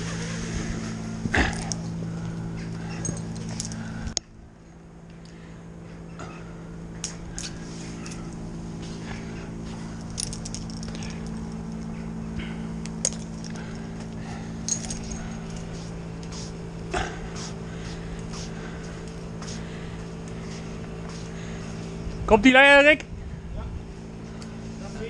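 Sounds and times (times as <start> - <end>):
low engine drone: 0.0 - 25.0
metallic clinks of climbing hardware: 1.5 - 2.0, 2.8 - 4.2, 9.9 - 12.0, 13.0 - 13.8, 14.6 - 16.3.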